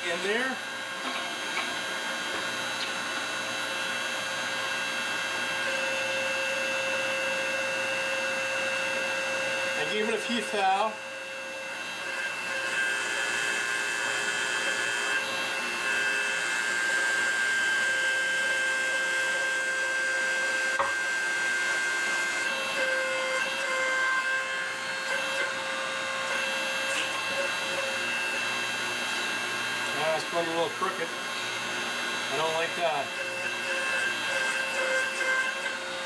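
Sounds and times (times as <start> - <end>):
hydraulic pump motor humming: 0.0 - 16.9, 24.7 - 36.0.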